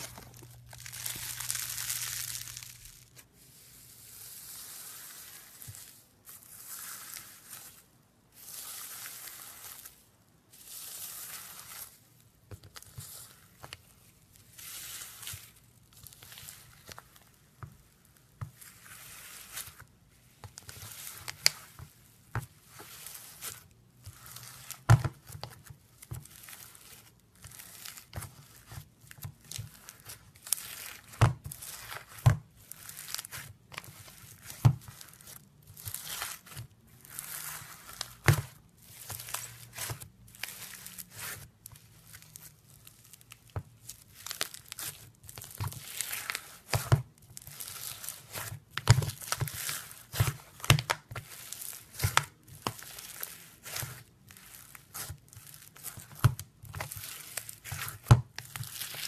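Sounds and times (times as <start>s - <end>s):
beads popping: 0.0s - 3.2s
crunchy slime being squeezed: 0.0s - 3.2s, 22.6s - 59.0s.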